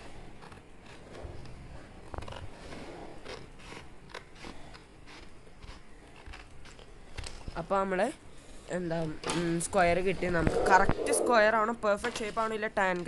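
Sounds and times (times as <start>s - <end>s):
scissors snipping paper: 0.0s - 7.6s.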